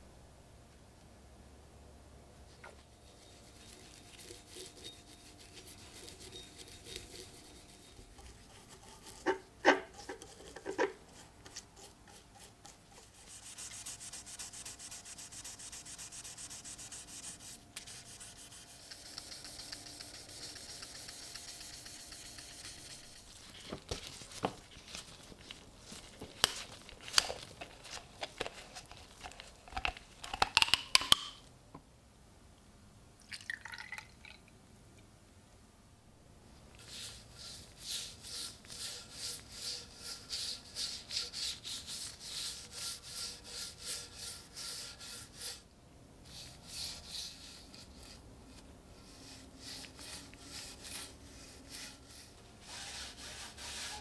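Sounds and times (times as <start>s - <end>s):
plastic bottle opening clicks: 29.3s - 31.4s
cloth scrubbing metal: 52.6s - 54.0s.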